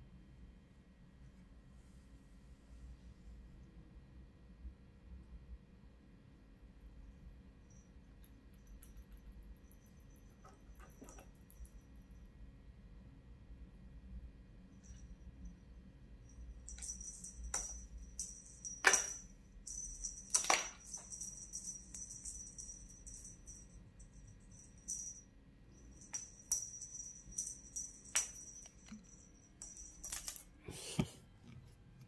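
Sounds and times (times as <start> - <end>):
cat toy bell jingling: 7.7 - 12.2, 16.2 - 30.6.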